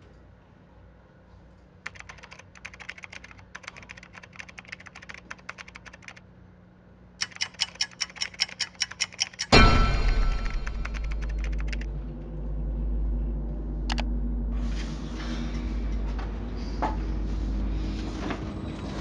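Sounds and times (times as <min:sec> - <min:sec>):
low room hum: 0:00.0 - 0:19.0
typing on a keyboard: 0:01.8 - 0:06.2, 0:07.2 - 0:09.6, 0:10.6 - 0:11.9.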